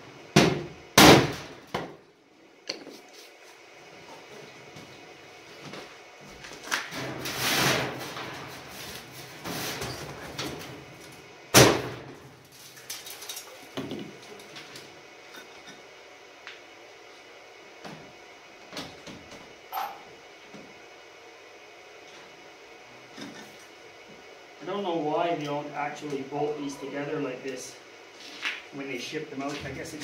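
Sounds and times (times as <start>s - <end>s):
sheet metal scraping and clattering: 6.9s - 10.7s.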